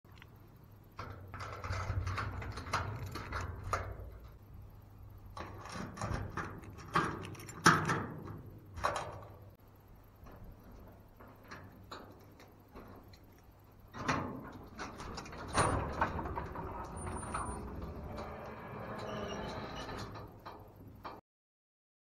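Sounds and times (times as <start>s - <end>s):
key scraping and clicking in lock: 5.4s - 9.2s
keys jingling: 6.5s - 8.1s.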